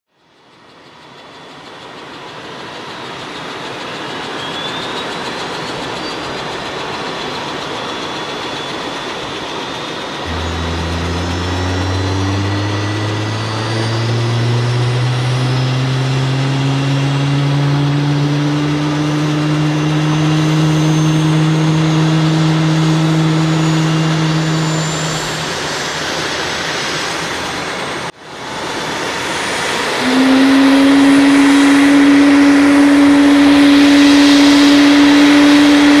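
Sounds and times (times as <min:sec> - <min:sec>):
helicopter rotor humming: 0:00.7 - 0:36.0
electric motor whining: 0:10.2 - 0:26.6, 0:29.9 - 0:36.0.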